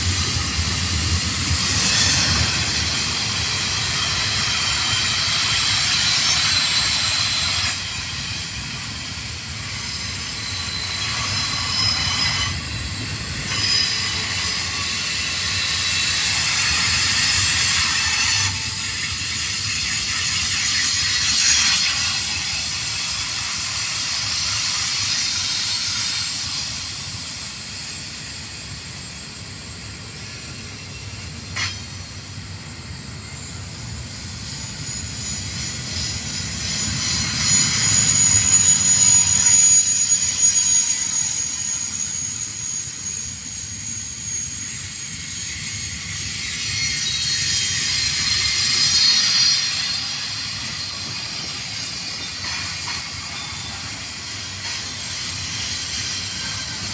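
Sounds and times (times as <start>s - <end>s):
high-pitched wheel squeal: 0.0s - 18.8s, 34.4s - 56.9s
train wheels rumbling on rails: 0.0s - 56.9s.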